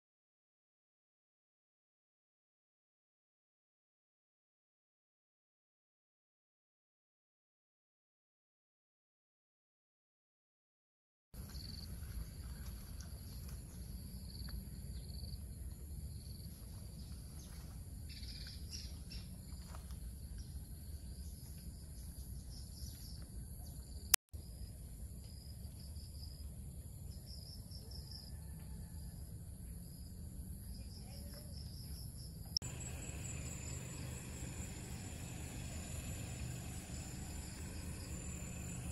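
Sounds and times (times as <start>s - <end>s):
chirps: 32.6s - 38.9s
insects buzzing: 32.6s - 38.9s
low rumble: 32.6s - 38.9s.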